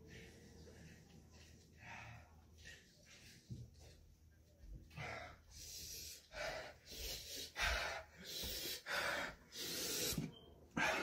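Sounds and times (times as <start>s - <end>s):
man panting through mouth: 4.9s - 11.0s.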